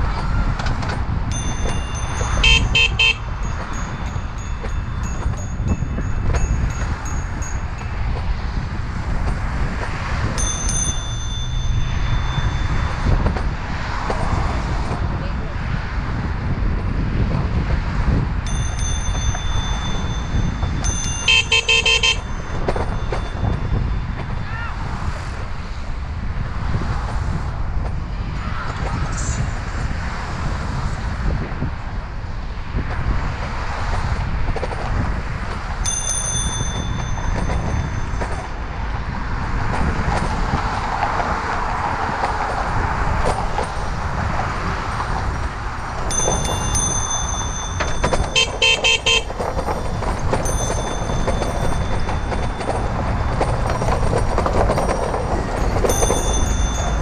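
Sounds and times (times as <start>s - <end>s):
wind and rolling noise: 0.0s - 57.0s
bicycle horn blasts: 2.3s - 3.3s, 21.1s - 22.4s, 48.2s - 49.4s.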